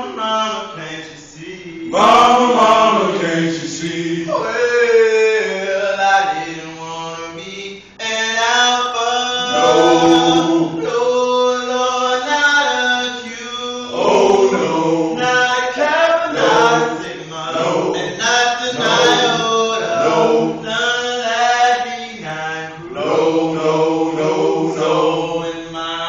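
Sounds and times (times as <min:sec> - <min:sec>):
men chanting in rhythm: 0:01.2 - 0:06.5, 0:08.6 - 0:25.8.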